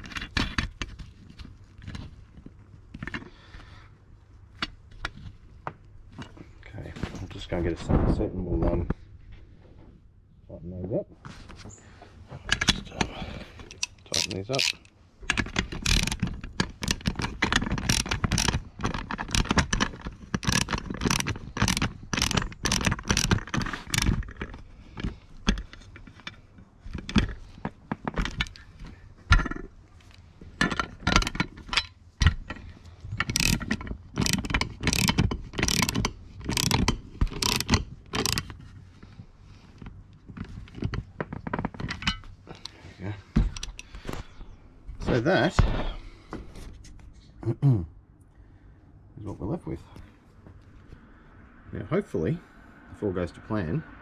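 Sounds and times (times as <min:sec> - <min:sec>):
steel parts clinking and scraping: 0:12.4 - 0:42.8
socket ratchet clicking: 0:13.7 - 0:24.5, 0:33.2 - 0:38.5.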